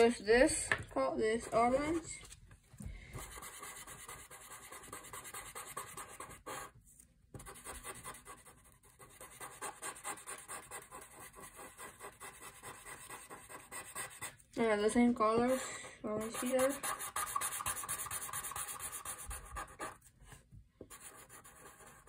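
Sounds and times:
marker scratching on paper: 3.1 - 14.4, 16.1 - 22.0.

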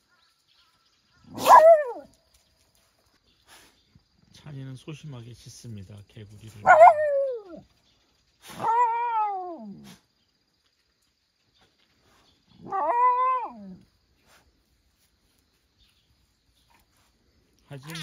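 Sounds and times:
dog whining barks: 1.2 - 2.1, 6.6 - 7.6, 8.5 - 10.0, 12.6 - 13.8.

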